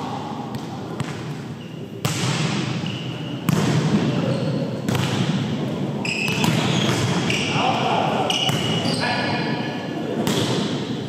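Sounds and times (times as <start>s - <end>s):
volleyball hits echoing: 0.0s - 2.8s, 3.4s - 4.2s, 4.8s - 5.6s, 6.2s - 8.8s, 10.2s - 11.0s.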